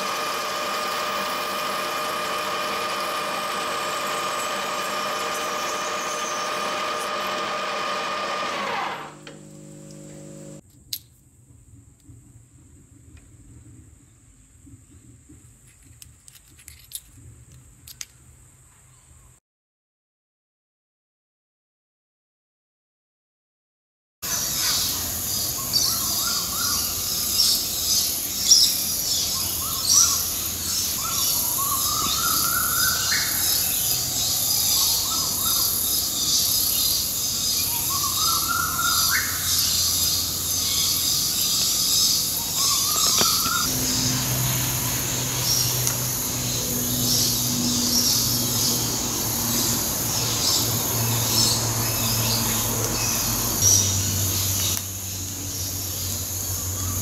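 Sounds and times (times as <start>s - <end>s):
birds chirping: 24.3s - 57.0s.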